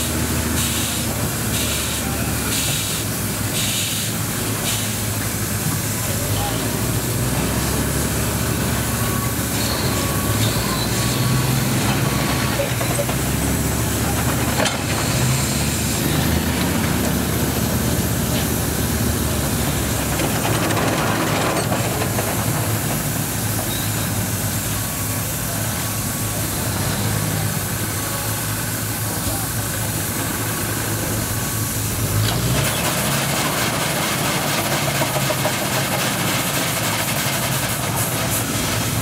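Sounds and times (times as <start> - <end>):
steam shovel working: 0.0 - 39.0.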